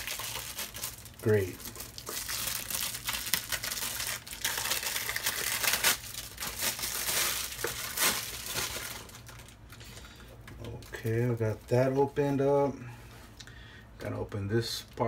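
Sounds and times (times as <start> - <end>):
packaging torn and crinkled: 0.0 - 9.7.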